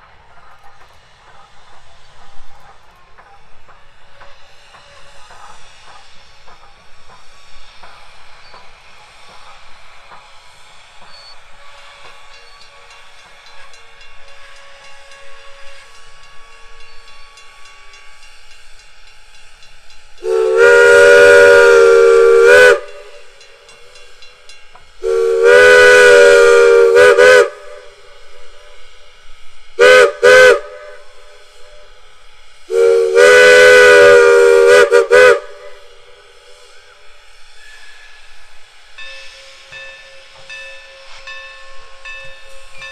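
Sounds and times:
faint passing train: 0.0 - 42.9
steam whistle blasts: 11.1 - 19.0, 20.2 - 23.4, 25.0 - 28.9, 29.8 - 32.0, 32.6 - 42.9.

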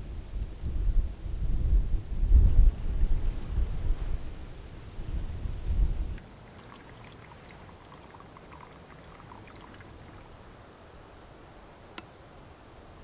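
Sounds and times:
soft steady hiss: 0.0 - 13.0
water trickling and dripping: 6.2 - 10.6.

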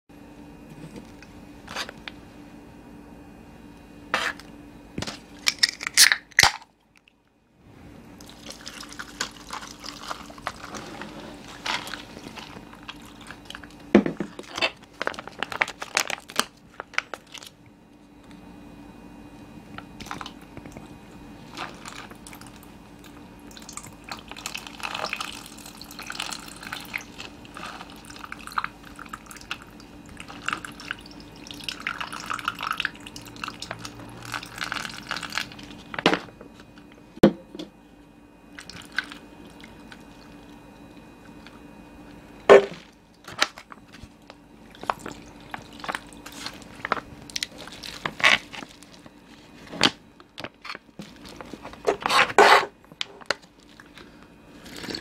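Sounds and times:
liquid pouring over ice: 8.2 - 10.8, 23.6 - 35.7.

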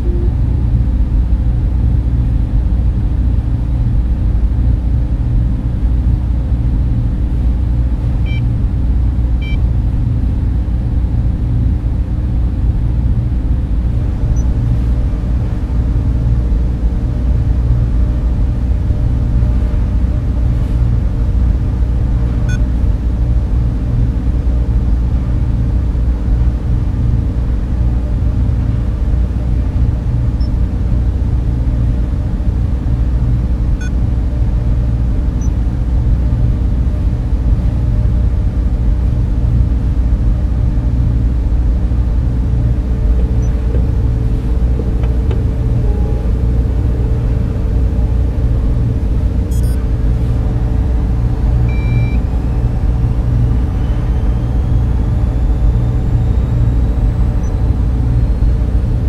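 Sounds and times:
short electronic beeps: 0.0 - 0.4, 42.9 - 47.2, 49.5 - 49.8, 51.6 - 56.7
fan and air-duct hum: 0.0 - 59.0
server machines droning: 0.0 - 59.0.

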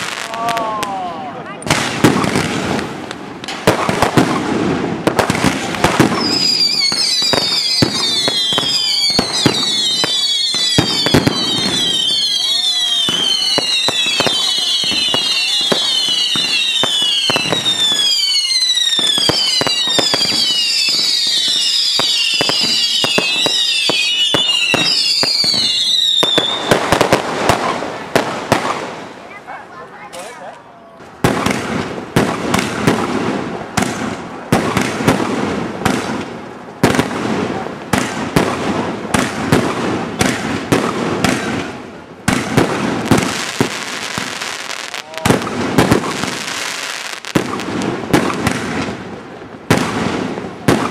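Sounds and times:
loud firework cracks: 0.0 - 29.4, 31.1 - 50.9
firework bangs: 0.0 - 29.5, 31.0 - 50.9
firework whistles falling in pitch: 6.1 - 27.0.

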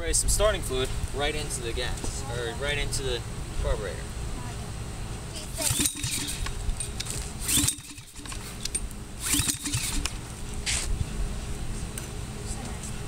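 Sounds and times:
recoil starter cord yanked: 5.6 - 10.2.

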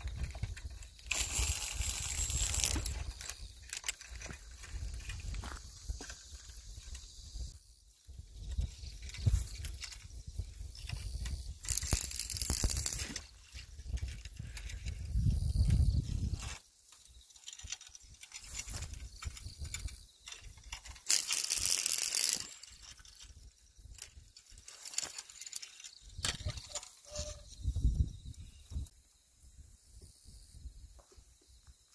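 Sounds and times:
wind buffeting the microphone: 0.0 - 16.6, 26.0 - 29.0
grass and reeds rustling: 0.0 - 28.9.

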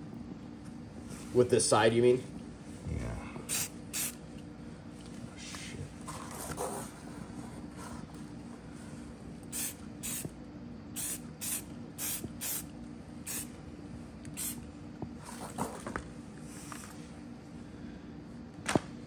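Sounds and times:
faint low hum: 0.0 - 19.0
spray paint can hissing bursts: 3.5 - 4.2, 9.5 - 10.3, 11.0 - 12.7, 13.3 - 13.5, 14.4 - 14.6.

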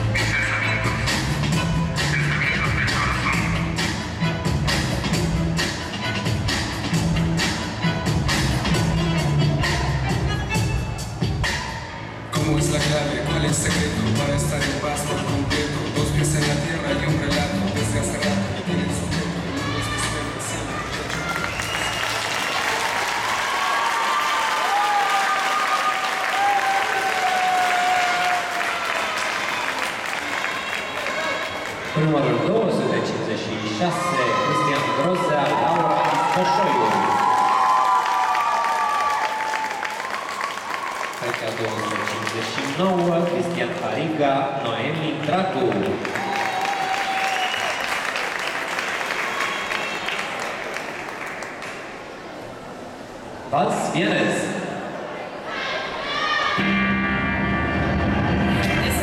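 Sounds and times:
ballroom dance music: 0.0 - 22.0
audience applauding: 20.8 - 32.0, 34.7 - 52.2.

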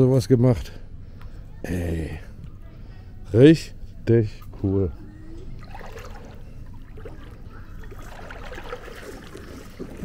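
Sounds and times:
small scattered noises: 0.0 - 10.0
water trickling and lapping: 5.3 - 10.0.

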